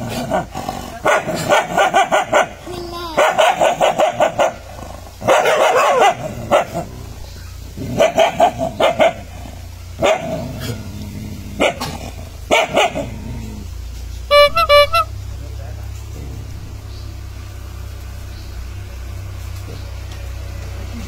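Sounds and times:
dogs barking: 0.0 - 15.1.

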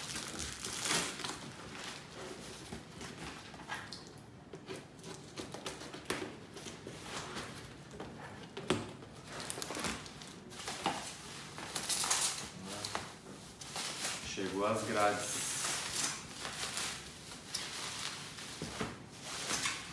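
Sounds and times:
paper and cardboard rustling: 4.6 - 19.9.

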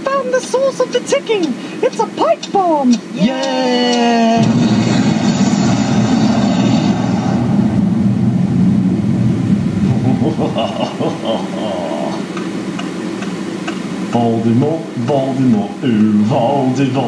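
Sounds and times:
indistinct voices murmuring: 0.0 - 8.1, 9.7 - 17.0
rush of noise: 3.0 - 17.0
car cabin road rumble: 3.8 - 17.0.

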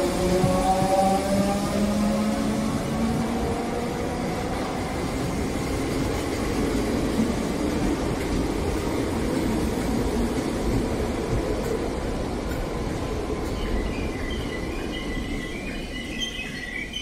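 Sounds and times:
train wheels rumbling on rails: 0.0 - 17.0.

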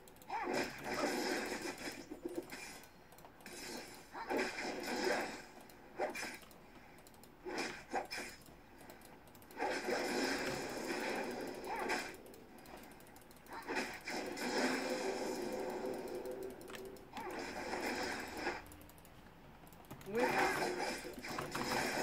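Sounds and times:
typing on computer keyboard: 6.4 - 7.4, 8.3 - 9.6, 11.3 - 13.6, 15.4 - 17.3, 18.6 - 20.2.

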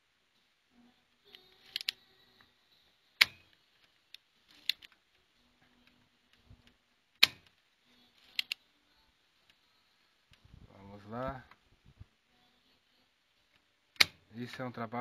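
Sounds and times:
solder sucker clicking: 3.2 - 3.6, 7.2 - 7.5, 14.0 - 14.2.

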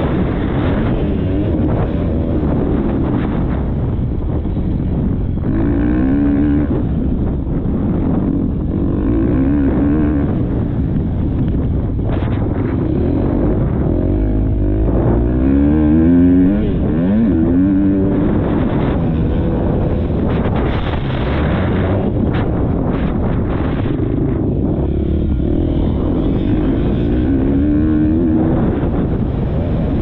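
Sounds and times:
motorbike engine revving: 0.0 - 30.0
wind rumble: 0.0 - 30.0.

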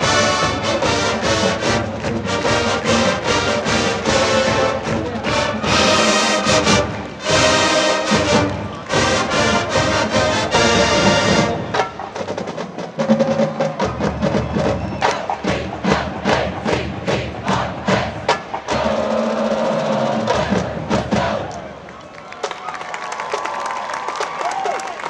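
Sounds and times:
brass playing held chords: 0.0 - 11.9
marching drums: 0.0 - 21.7.

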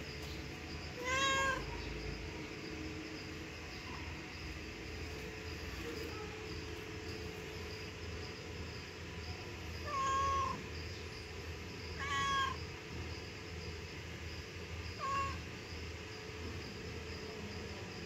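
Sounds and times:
insects chirping: 0.0 - 18.0
cat meowing: 1.0 - 1.7, 9.8 - 10.6, 12.0 - 12.6, 15.0 - 15.4.

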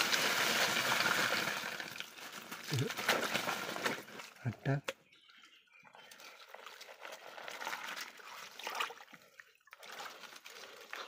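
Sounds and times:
stream water sloshing around feet: 6.0 - 11.0
small splashes: 6.1 - 11.0.

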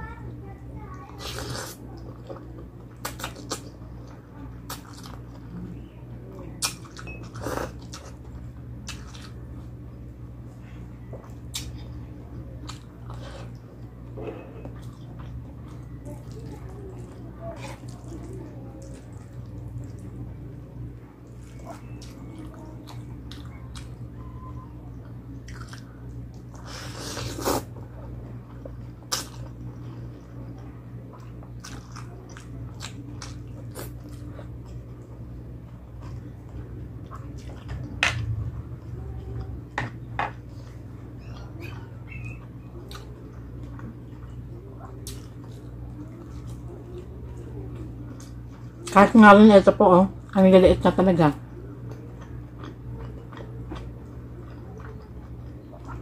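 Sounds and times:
steady low hum: 0.0 - 56.0
chewing and biting food: 25.0 - 30.2, 31.0 - 48.9, 51.8 - 56.0.

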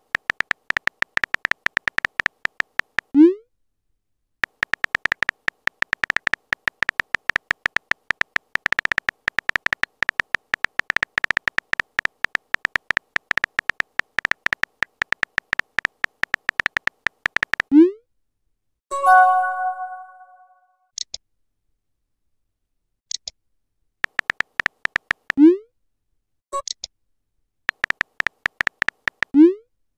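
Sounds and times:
keyboard tap clicks with beeps: 0.2 - 3.1, 4.4 - 17.7, 24.0 - 25.4, 27.7 - 29.4.

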